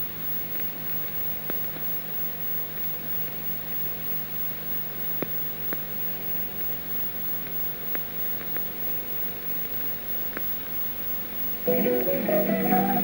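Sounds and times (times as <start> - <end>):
film soundtrack hiss and hum: 0.0 - 13.0
faint clicks and pops: 7.3 - 8.8.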